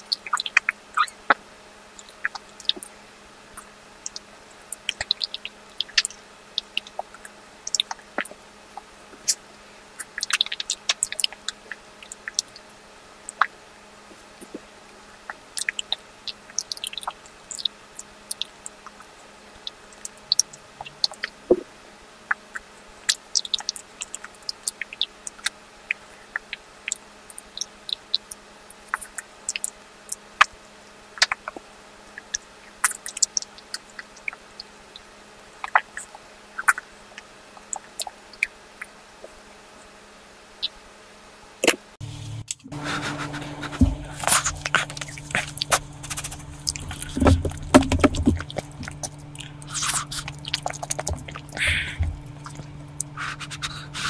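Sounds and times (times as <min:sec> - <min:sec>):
wet mouth clicks and smacks: 0:44.2 - 0:54.0.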